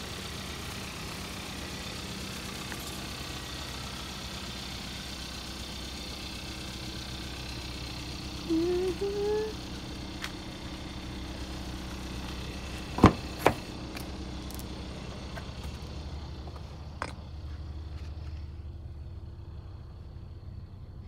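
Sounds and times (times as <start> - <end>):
car engine idling: 0.0 - 21.0
car door handle clicks: 13.0 - 13.6.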